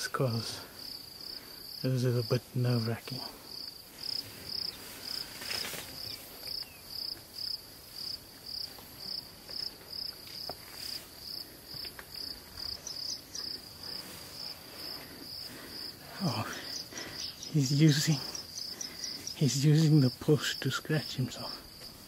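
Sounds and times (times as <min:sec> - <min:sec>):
insect chirping: 0:00.0 - 0:22.0.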